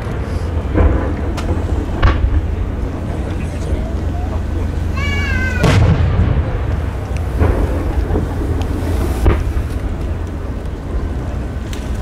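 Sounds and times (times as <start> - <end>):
wind rumble on microphone: 0.0 - 12.0
firework booms with echo: 0.4 - 4.5, 5.5 - 11.0.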